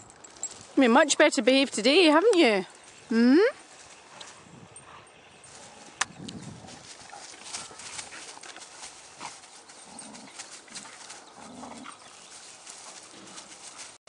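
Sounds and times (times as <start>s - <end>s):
stick and leaves cracking: 5.9s - 11.3s.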